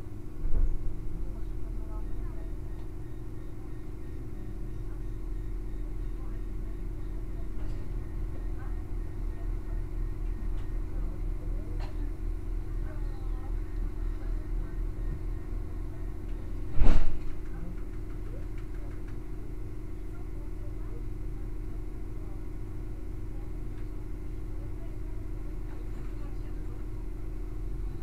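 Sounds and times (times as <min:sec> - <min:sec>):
low engine hum: 0:00.0 - 0:28.0
loud short thump: 0:16.8 - 0:17.3.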